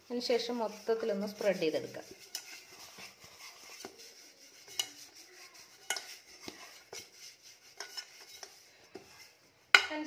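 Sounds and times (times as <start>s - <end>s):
faint scraping: 0.0s - 9.7s.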